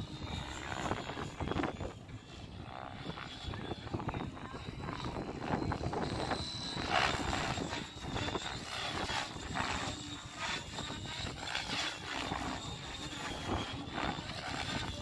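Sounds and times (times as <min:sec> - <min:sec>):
model helicopter whine and rotor swish: 0:00.0 - 0:15.0.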